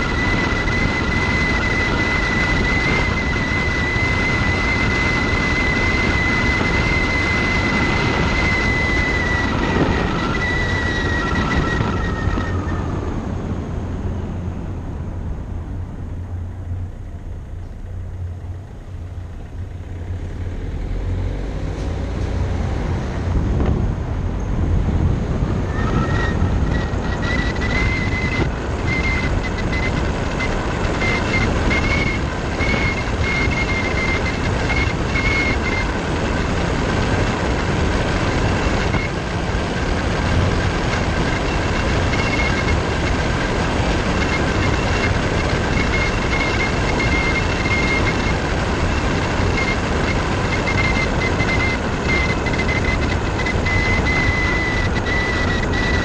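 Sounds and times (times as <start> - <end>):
high wavering whistle: 0.0 - 12.9
wind rushing over camera: 0.0 - 16.2, 19.5 - 56.0
low road rumble: 0.0 - 56.0.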